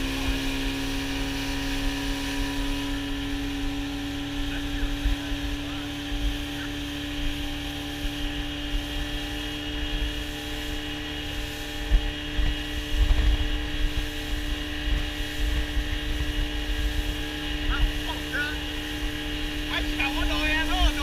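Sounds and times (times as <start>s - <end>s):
outboard motor droning: 0.0s - 21.0s
wind gusting on microphone: 0.0s - 21.0s.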